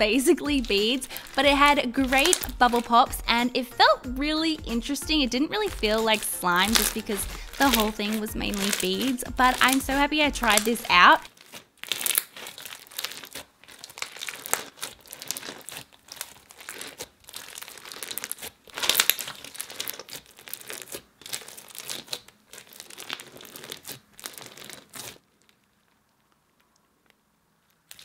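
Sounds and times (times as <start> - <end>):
slime crackling bubble pops: 2.0 - 3.0.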